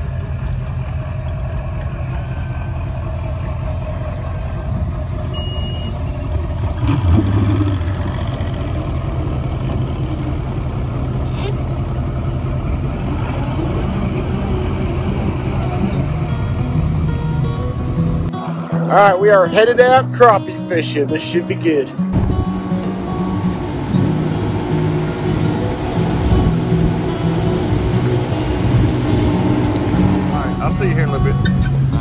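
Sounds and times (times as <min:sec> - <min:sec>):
motor engine running: 0:22.1 - 0:31.2.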